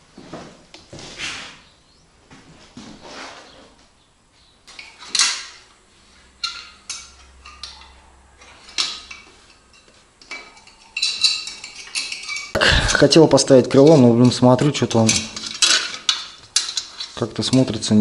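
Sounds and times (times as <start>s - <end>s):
metal mudguard clinking and knocking: 6.4s - 12.6s, 13.8s - 17.6s.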